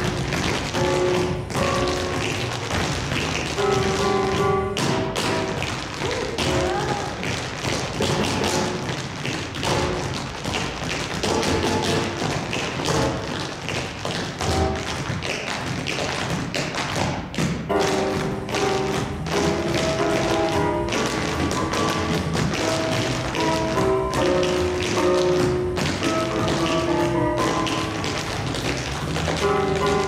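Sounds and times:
tap shoes on stage floor: 0.0 - 30.0
recorded music with melody: 17.7 - 30.0.

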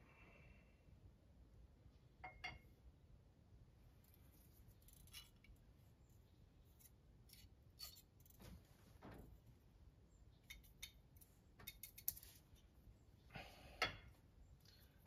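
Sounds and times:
faint metallic clicks and scrapes: 4.0 - 5.6, 10.4 - 12.7.

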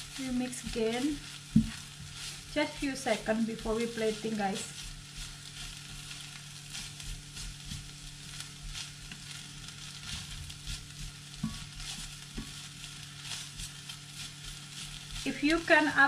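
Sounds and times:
noodles sizzling in frying pan: 0.0 - 16.0
spatula scraping pan: 0.0 - 16.0.

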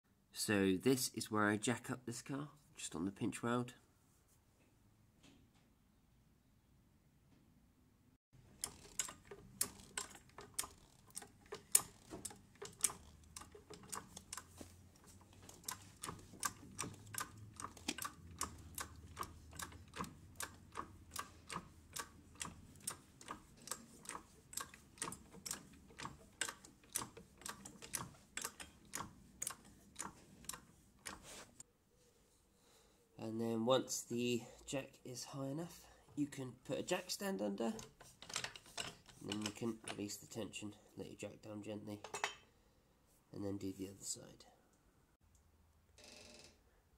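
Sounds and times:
trolley jack pumping clicks: 8.4 - 31.6, 37.6 - 40.0.

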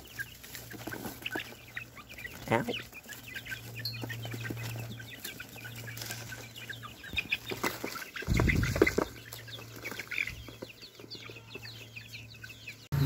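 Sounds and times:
chicks clucking and chirping: 0.0 - 13.0.

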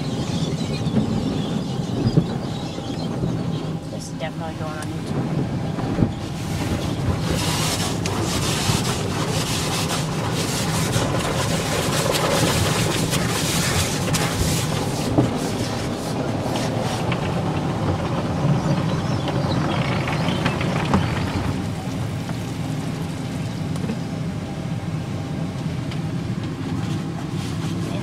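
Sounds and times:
car wash machinery hum: 0.0 - 28.0
water spraying on car: 3.9 - 24.3, 26.5 - 28.0
soap foam pouring on windshield: 6.2 - 18.5.

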